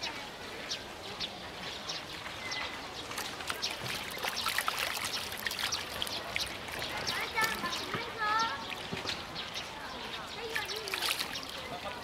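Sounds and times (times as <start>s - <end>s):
fish splashing in shallow water: 2.8s - 12.0s.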